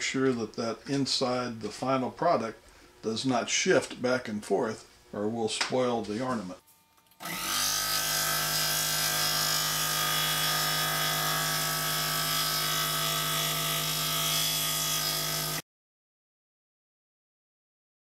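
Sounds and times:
scroll saw humming: 6.3s - 15.6s.

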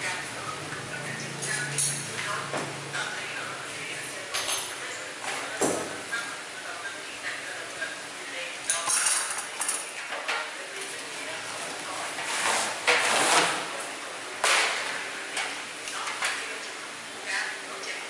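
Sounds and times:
foam wrapping scraping and rustling: 11.6s - 13.7s.

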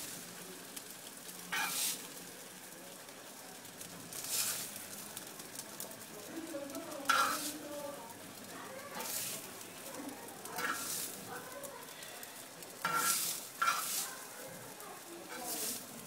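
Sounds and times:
metal spoon scraping griddle: 1.5s - 2.2s, 4.1s - 4.8s, 7.0s - 7.7s, 8.9s - 11.5s, 12.7s - 16.0s.

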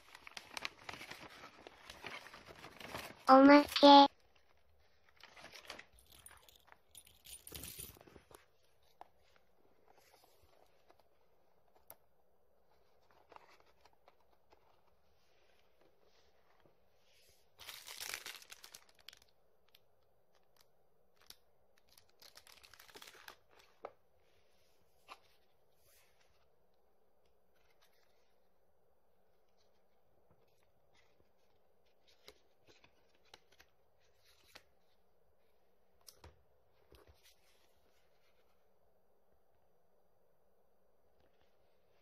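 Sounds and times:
plastic wrapping crinkling: 0.0s - 8.3s, 17.6s - 23.7s.

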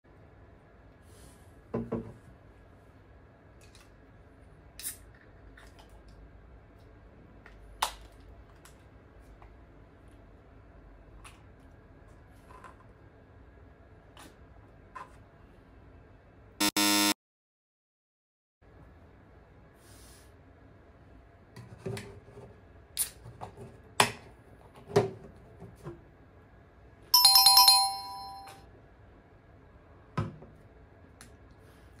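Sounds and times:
electronic phone chime: 27.2s - 28.6s.

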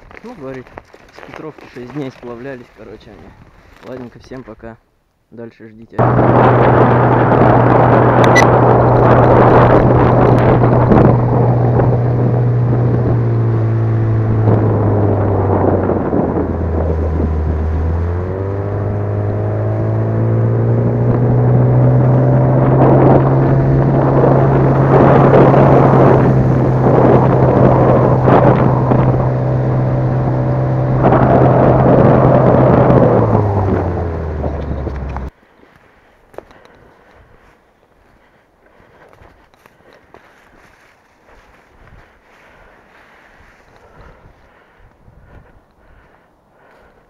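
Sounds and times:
outboard motor drone: 6.0s - 35.3s.

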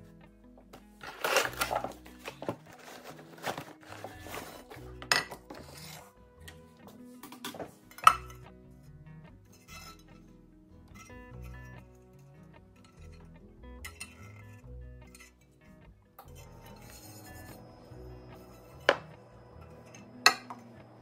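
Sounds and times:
soft background music: 0.0s - 21.0s
cloth bag and cardboard rustling: 1.0s - 6.1s.

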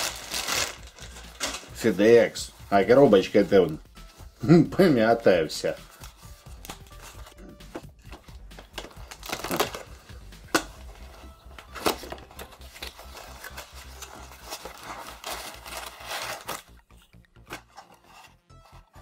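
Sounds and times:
mailer bag rustling and crinkling: 0.0s - 2.3s, 11.1s - 16.8s
packaging snaps: 8.5s - 10.9s.

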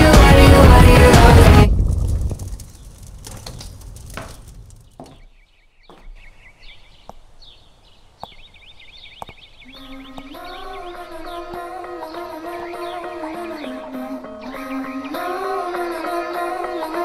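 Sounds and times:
bird-like chirping: 4.9s - 15.6s.

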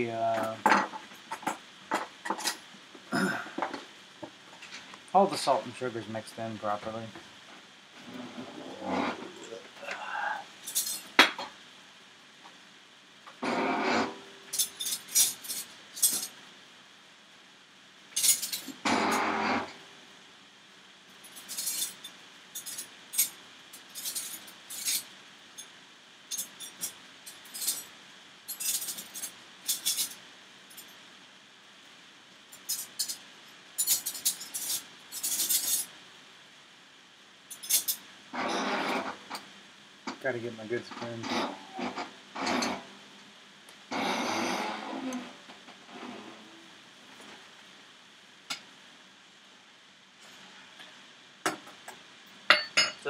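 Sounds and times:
cutlery and dishes clinking: 0.4s - 2.6s, 21.3s - 25.1s, 28.5s - 30.9s, 33.8s - 35.9s, 51.5s - 53.0s
dishes clattering: 51.5s - 53.0s.

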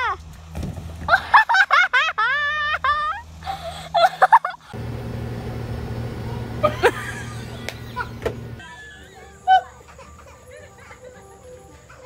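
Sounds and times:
steady low hum: 2.8s - 8.7s
high-pitched voice crying: 8.6s - 12.0s.

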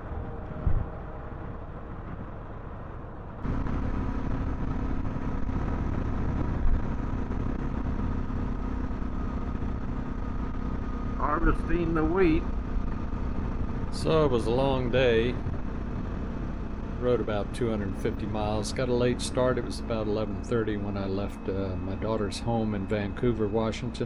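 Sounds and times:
wind noise: 0.0s - 17.6s
motorcycle engine running: 3.4s - 24.0s.

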